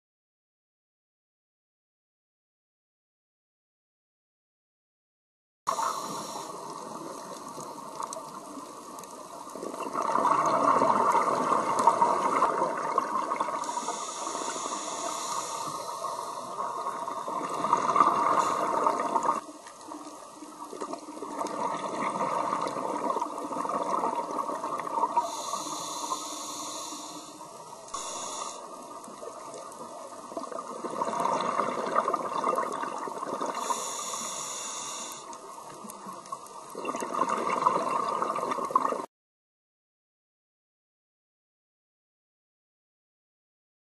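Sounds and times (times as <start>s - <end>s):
regulator inhalation hiss: 5.7s - 7.4s, 13.6s - 17.1s, 18.2s - 19.1s, 25.2s - 29.2s, 33.5s - 35.6s
exhaled bubbles underwater: 5.7s - 39.1s.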